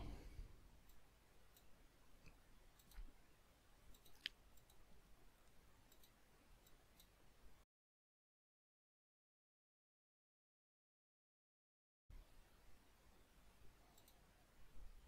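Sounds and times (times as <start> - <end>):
faint computer mouse clicks: 3.9 - 4.8, 5.4 - 7.1, 13.9 - 14.2.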